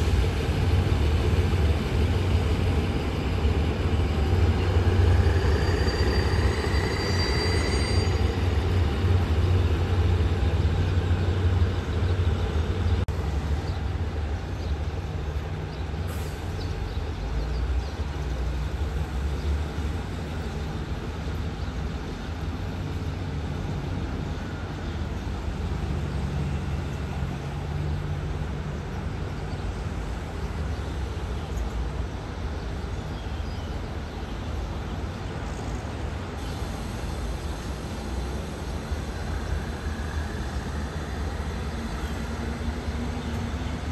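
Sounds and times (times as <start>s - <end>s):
diesel locomotive engine rumble: 0.0s - 43.9s
high wheel squeal: 3.0s - 10.2s.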